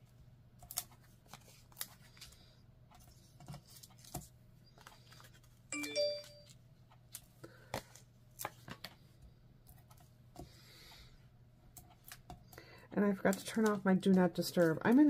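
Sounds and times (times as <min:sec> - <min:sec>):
three-note rising notification chime: 0:05.8 - 0:06.5.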